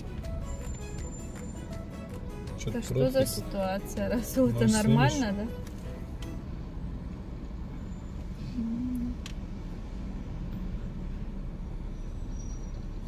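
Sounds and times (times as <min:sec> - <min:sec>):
car engine and tyres rumble: 0:00.0 - 0:13.0.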